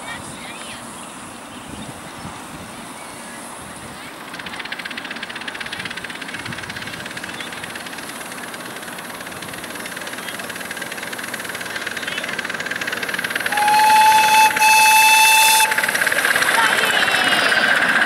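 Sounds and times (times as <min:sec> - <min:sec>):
model steam locomotive exhaust beats: 0:02.4 - 0:18.0.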